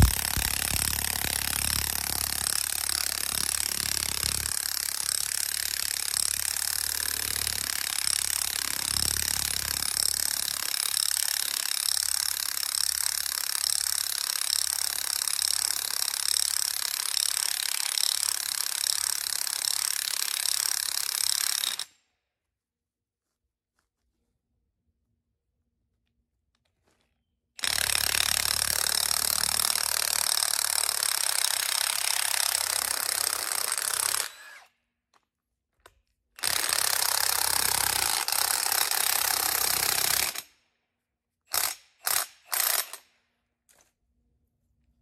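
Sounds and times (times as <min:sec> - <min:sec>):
cordless drill whining: 0:00.0 - 0:04.8, 0:31.8 - 0:34.7.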